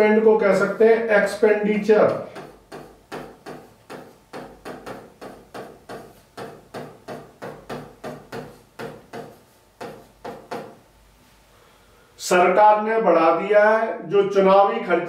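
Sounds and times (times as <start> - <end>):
stylus tapping on glass: 2.1 - 10.8.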